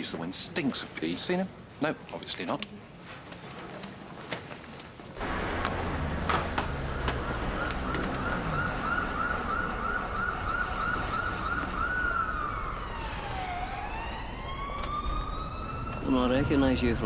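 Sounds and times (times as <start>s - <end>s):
ambulance siren: 5.2s - 17.0s.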